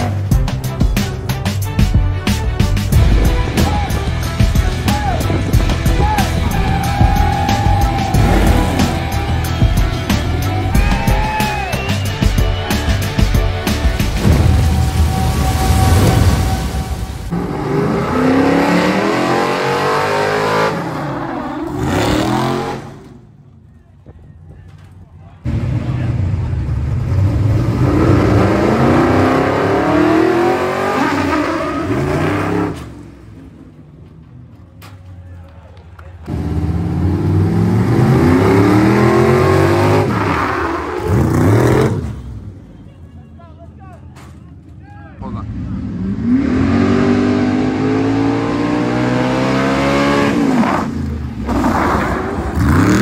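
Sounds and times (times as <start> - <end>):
truck engine accelerating: 0.0 - 23.6, 24.4 - 42.6, 44.5 - 53.0
fire truck engine accelerating: 2.9 - 23.6
loud burst of noise: 14.2 - 17.4.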